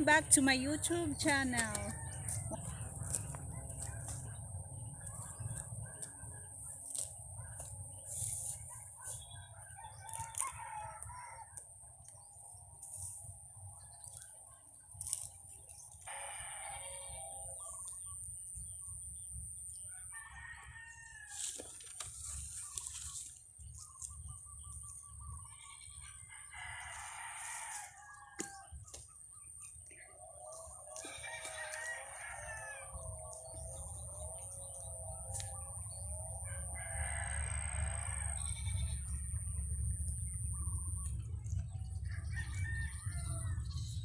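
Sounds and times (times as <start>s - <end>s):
steady low rumble: 0.0s - 16.2s, 32.0s - 44.0s
drawn-out animal calls: 16.0s - 17.9s, 25.1s - 26.3s, 36.4s - 39.9s.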